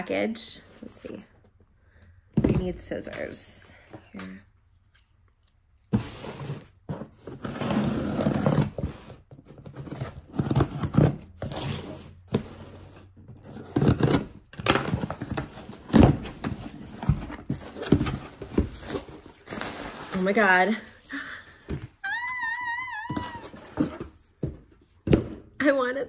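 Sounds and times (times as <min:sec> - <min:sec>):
scissors cutting cardboard: 0:05.9 - 0:12.7, 0:13.4 - 0:19.0
cardboard tearing and rustling: 0:06.0 - 0:20.6.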